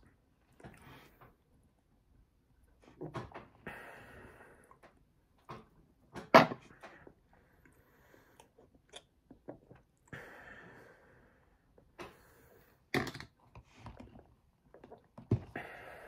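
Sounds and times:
close-up eating sounds: 6.8s - 10.1s.

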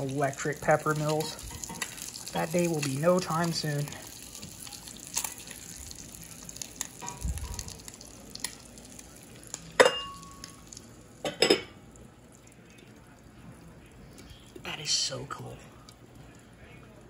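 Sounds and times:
egg sizzling in skillet: 0.0s - 13.7s
sharp glass clink: 9.8s - 10.4s.

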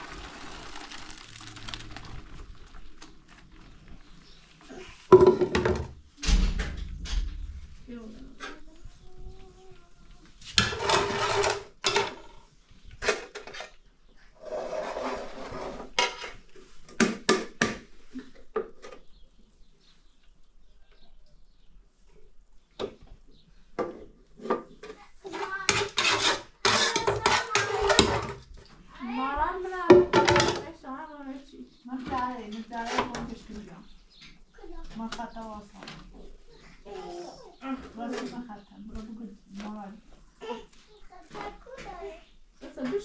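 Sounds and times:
pots clanking: 5.1s - 6.0s, 10.6s - 12.3s, 23.8s - 28.5s, 29.9s - 30.8s
metal ladle scraping a pot: 25.3s - 28.4s.

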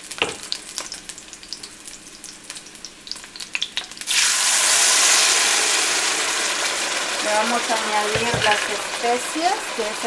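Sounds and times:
onion frying in oil: 0.0s - 10.0s
salsa poured into oil: 3.2s - 7.2s.

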